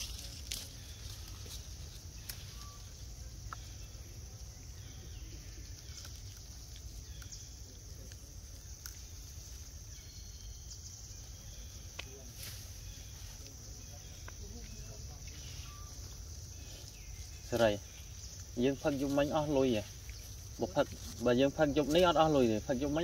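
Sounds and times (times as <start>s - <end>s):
dry bamboo stalks snapping: 0.0s - 2.8s, 5.8s - 9.2s
high insect drone: 0.0s - 23.0s.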